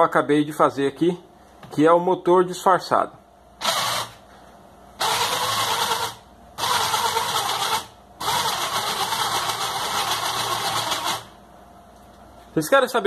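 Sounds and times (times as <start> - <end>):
small electric motor whirring: 3.6 - 4.2, 5.0 - 11.3.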